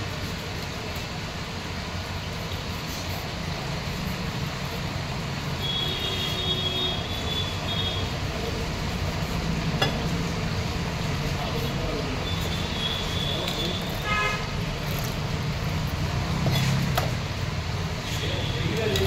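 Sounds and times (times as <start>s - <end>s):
traffic rumble: 0.0s - 19.0s
car horn toot: 12.4s - 14.5s.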